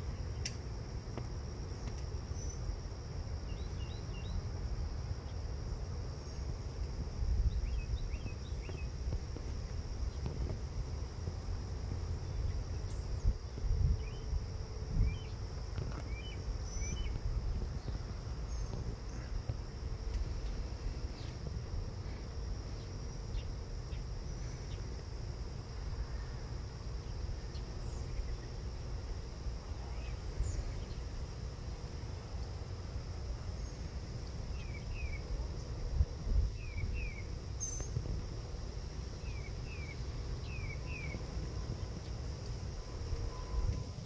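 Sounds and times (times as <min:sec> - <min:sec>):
insects trilling: 0:00.0 - 0:44.0
bird chirping: 0:03.5 - 0:04.4, 0:07.4 - 0:09.0, 0:16.0 - 0:19.3.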